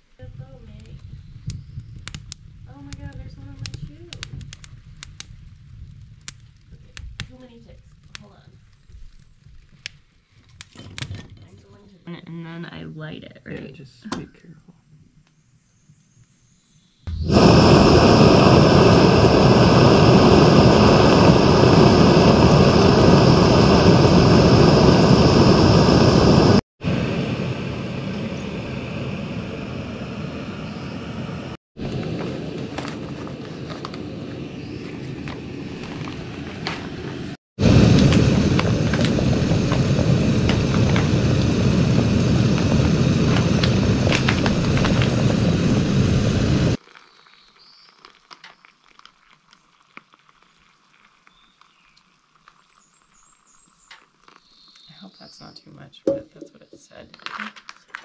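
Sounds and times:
faint crackles: 0.0s - 12.2s, 31.8s - 55.3s
camp stove burner roaring: 0.8s - 11.2s, 17.1s - 46.9s.

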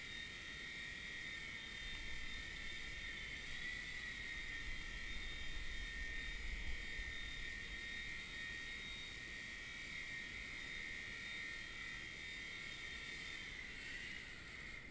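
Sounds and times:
toy helicopter motor whining: 0.0s - 14.9s.

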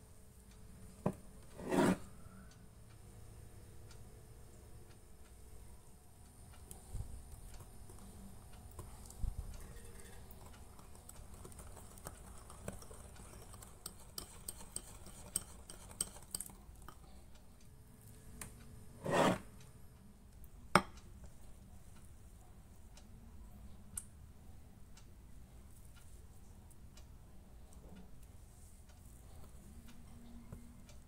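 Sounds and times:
whisk clicking against bowl: 7.2s - 17.1s
whisk scraping bowl: 8.7s - 17.0s.

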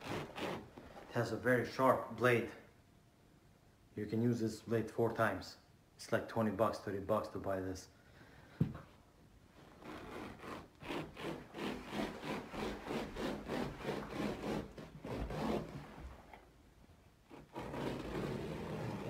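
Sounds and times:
hand rubbing carpet: 9.6s - 16.3s, 17.3s - 19.0s.

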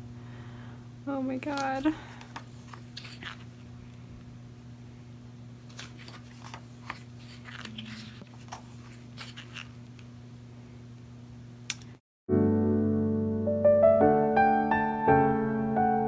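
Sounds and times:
book pages rustling: 1.5s - 3.6s, 5.6s - 9.9s
sharp click: 11.7s - 12.0s.

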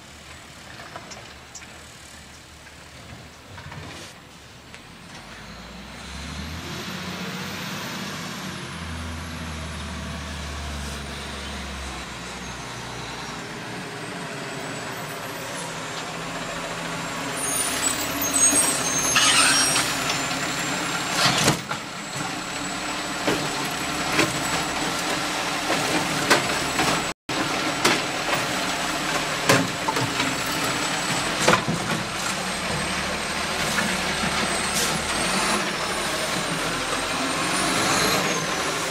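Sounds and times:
air brakes hissing and squealing: 10.6s - 15.9s, 16.9s - 27.1s, 29.9s - 38.9s.

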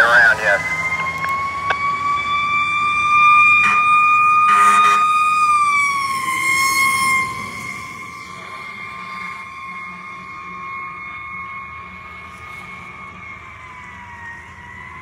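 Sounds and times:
fire engine siren: 0.0s - 15.0s
horn blasts: 3.6s - 5.1s.

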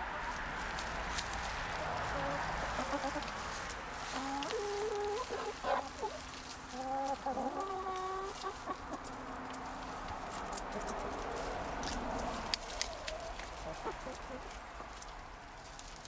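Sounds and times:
hens clucking: 0.0s - 15.9s
hens drawn-out calls: 4.0s - 9.0s.

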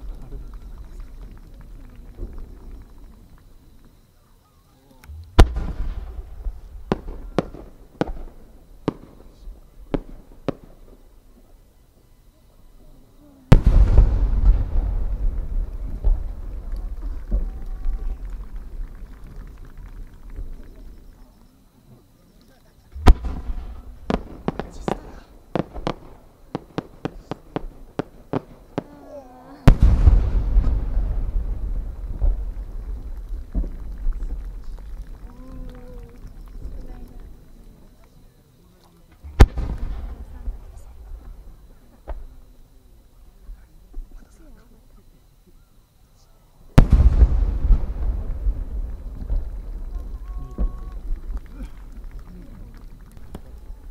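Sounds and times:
rolling low rumble: 5.0s - 8.6s, 13.5s - 21.4s, 29.8s - 38.0s
sharp firework cracks: 5.0s - 11.1s, 13.5s - 21.2s, 23.0s - 37.5s, 39.1s - 42.5s, 46.7s - 53.9s
firework shell launch boom: 5.1s - 9.2s, 23.0s - 26.2s, 29.7s - 33.8s.

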